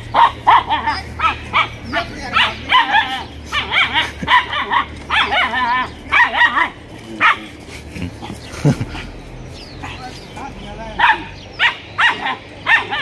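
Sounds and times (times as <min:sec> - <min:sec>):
dog barking: 0:00.0 - 0:07.5, 0:11.0 - 0:13.0.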